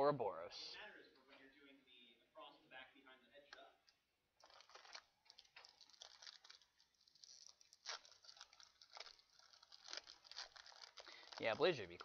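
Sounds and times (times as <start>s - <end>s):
foil wrapper crinkling and tearing: 4.4s - 12.0s.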